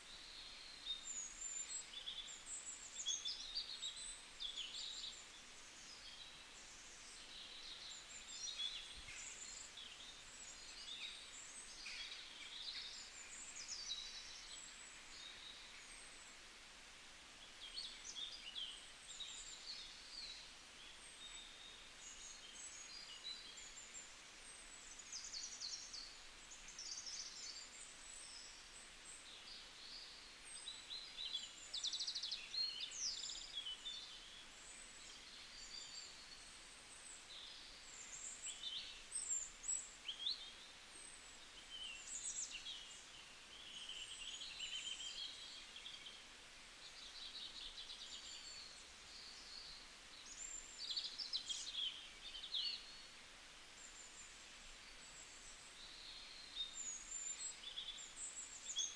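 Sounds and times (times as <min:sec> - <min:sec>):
faint steady hiss: 0:00.0 - 0:58.9.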